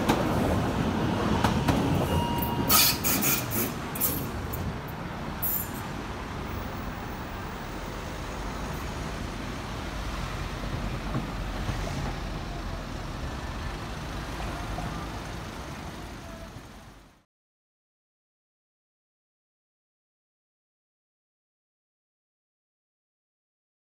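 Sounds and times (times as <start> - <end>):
cars driving past: 0.0 - 17.2.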